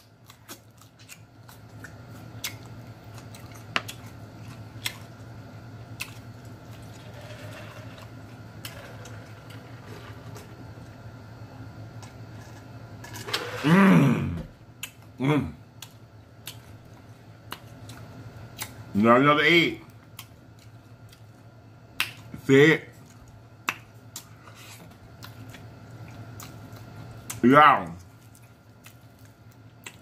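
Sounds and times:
chewing and finger-licking smacks: 0.0 - 5.3, 5.9 - 6.9, 14.8 - 15.1, 15.8 - 18.9, 19.9 - 22.3, 23.0 - 27.4, 28.1 - 30.0
low hum: 1.1 - 19.2
voiced moan of enjoyment: 13.6 - 14.5.

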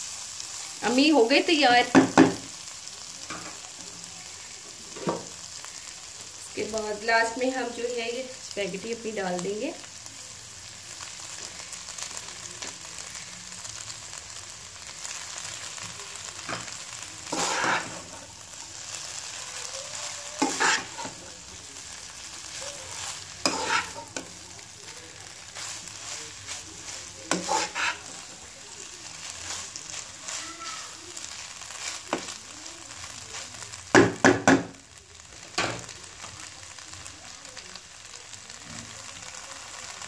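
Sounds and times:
food sizzling in a wok: 0.0 - 40.0
spatula scraping pan: 16.4 - 18.3, 19.9 - 21.3, 22.5 - 24.4, 25.3 - 28.4, 29.2 - 32.4.

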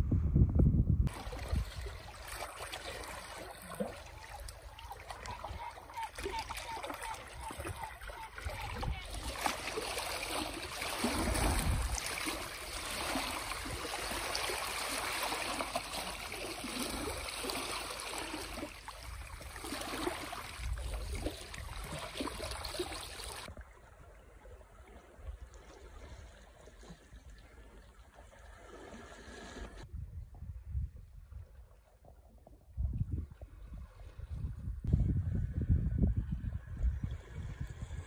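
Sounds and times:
seawater washing over rocks: 1.1 - 23.6.

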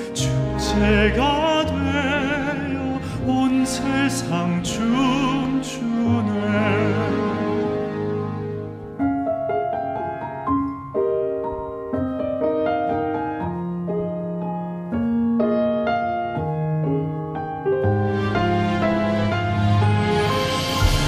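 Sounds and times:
slow gentle piano: 0.0 - 21.0.

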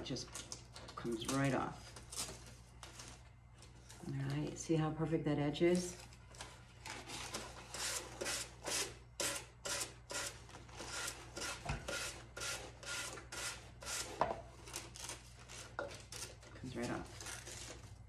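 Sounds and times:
sanding block rasping on wood: 10.9 - 14.2.

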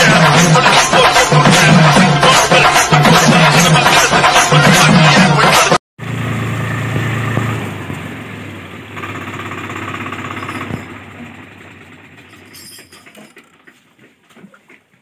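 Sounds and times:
tractor diesel engine running: 6.0 - 14.2.

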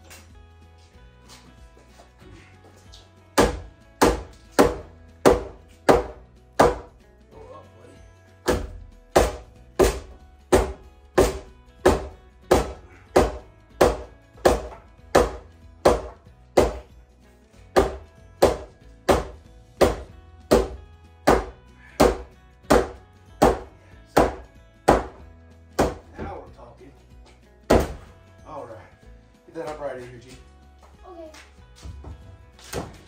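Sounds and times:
hammer striking wood: 3.4 - 6.9, 8.4 - 16.9, 17.7 - 25.2, 25.8 - 26.4, 27.7 - 28.1.

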